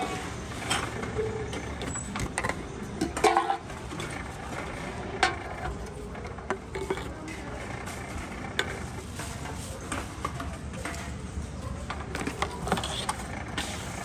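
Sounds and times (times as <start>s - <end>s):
vending machine conveyor running: 0.0s - 14.0s.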